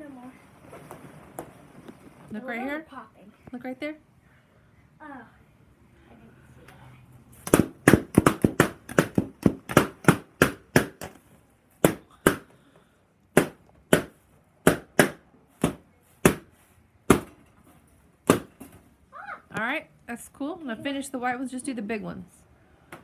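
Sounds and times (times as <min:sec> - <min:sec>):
balloons bursting with sharp pops: 0:07.4 - 0:12.6, 0:13.3 - 0:17.3, 0:18.2 - 0:18.6.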